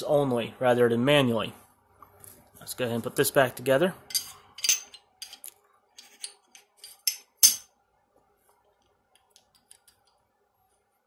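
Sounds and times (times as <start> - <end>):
pistol parts clicking: 4.1 - 7.7.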